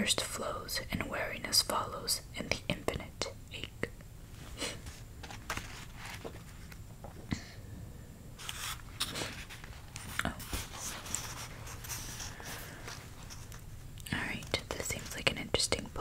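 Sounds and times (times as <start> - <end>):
book pages flipping: 4.7 - 7.2, 8.4 - 15.3.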